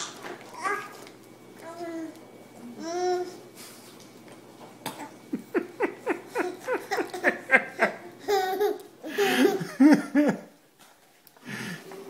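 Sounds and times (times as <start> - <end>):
baby laughing: 5.0 - 10.4.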